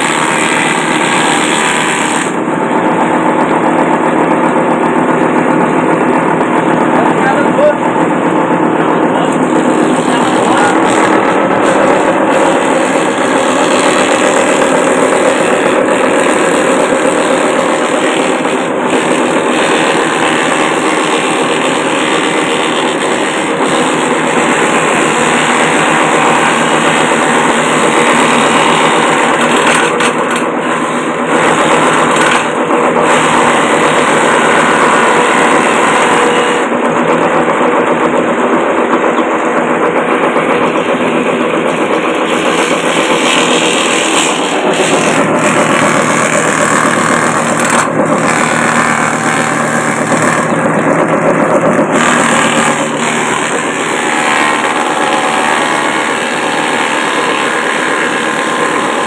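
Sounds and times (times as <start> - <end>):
blades cutting grass: 0.0 - 2.4, 42.2 - 59.0
chopper machine motor running: 0.0 - 59.0.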